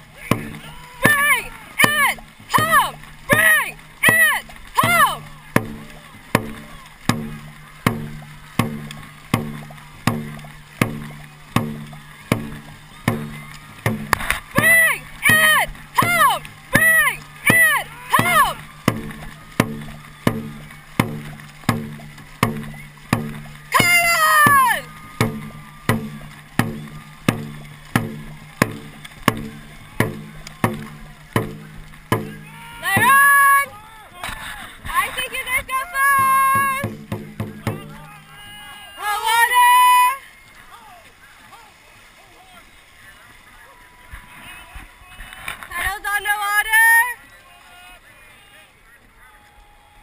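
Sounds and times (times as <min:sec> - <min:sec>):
drum beaten steadily: 0:00.0 - 0:33.8, 0:34.8 - 0:40.1
paddles splashing water: 0:00.0 - 0:50.0.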